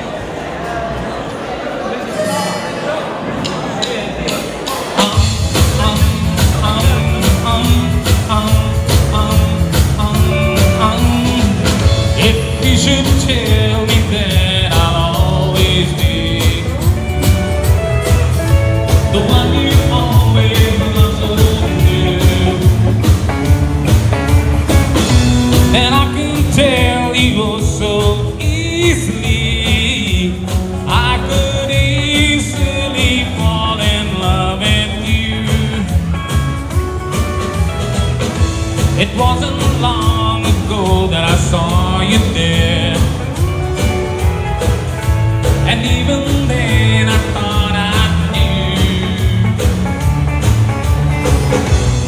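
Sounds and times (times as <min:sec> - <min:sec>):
live rock band playing: 0:02.3 - 0:52.0
lead electric guitar: 0:04.7 - 0:52.0.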